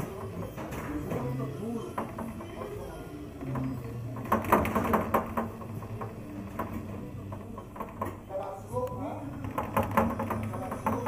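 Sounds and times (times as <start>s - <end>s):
sharp clicks and knocks: 3.4s - 11.0s.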